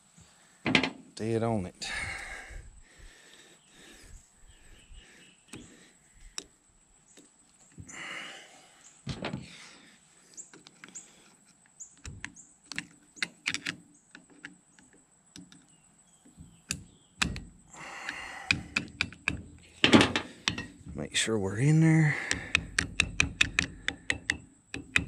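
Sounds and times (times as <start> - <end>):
metal parts clicking and knocking: 12.0 - 15.7, 16.7 - 21.0, 22.2 - 25.0.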